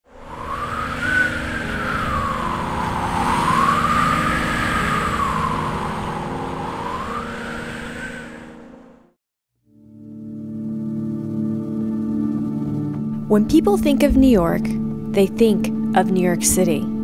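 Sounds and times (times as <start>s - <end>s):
siren wailing: 0.1s - 8.9s
low steady rumble: 13.2s - 15.8s.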